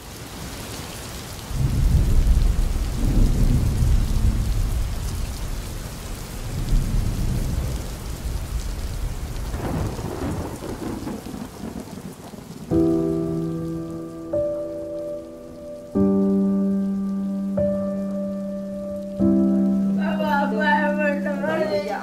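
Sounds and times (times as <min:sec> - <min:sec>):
steady rain: 0:00.0 - 0:22.0
rolling thunder: 0:01.5 - 0:13.2.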